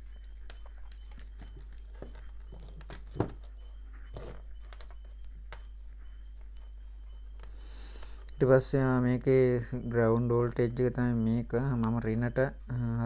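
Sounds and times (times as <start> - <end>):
wires rustling and clicking: 0.0 - 6.7.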